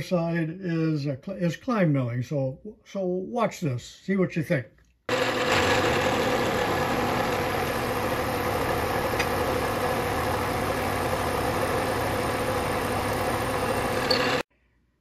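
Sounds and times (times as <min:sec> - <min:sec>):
milling machine cutting metal: 0:05.1 - 0:14.4.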